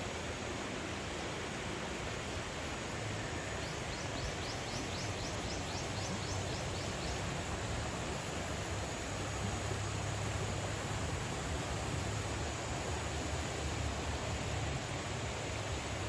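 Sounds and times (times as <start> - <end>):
stream water flowing: 0.0 - 16.0.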